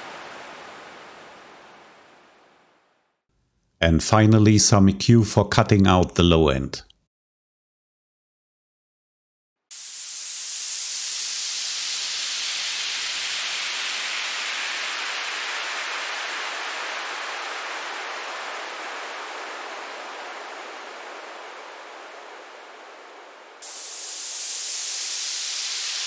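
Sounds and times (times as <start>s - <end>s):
white-noise downlifter hiss: 0.0s - 3.2s, 9.7s - 26.0s.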